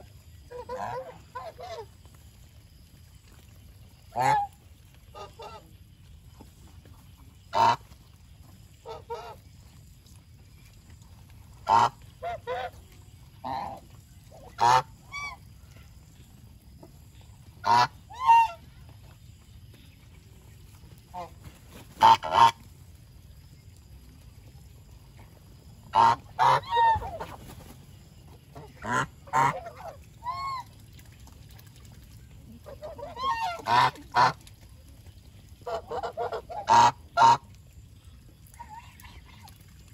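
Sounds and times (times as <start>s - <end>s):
geese honking: 14.4s - 15.4s, 17.6s - 18.6s, 25.9s - 27.3s, 28.6s - 30.6s, 32.6s - 34.4s, 35.6s - 37.4s.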